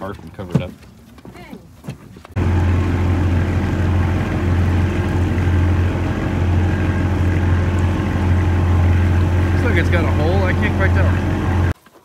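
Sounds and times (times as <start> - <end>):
boat engine droning: 2.4 - 11.8
rushing water: 2.4 - 11.9.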